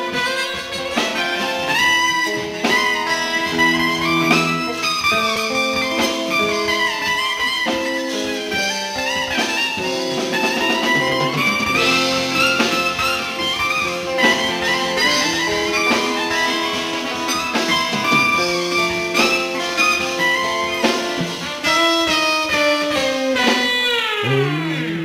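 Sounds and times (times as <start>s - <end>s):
drums: 0.0s - 25.0s
electric bass: 1.7s - 7.2s, 9.4s - 21.7s, 23.5s - 25.0s.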